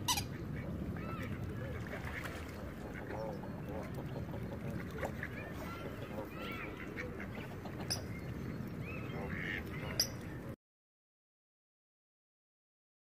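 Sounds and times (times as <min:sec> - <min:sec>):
ducks calling: 0:00.0 - 0:10.4.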